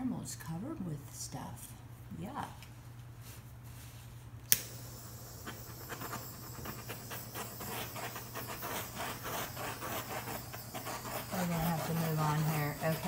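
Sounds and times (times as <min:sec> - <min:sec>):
butane torch hissing: 0:04.6 - 0:13.0.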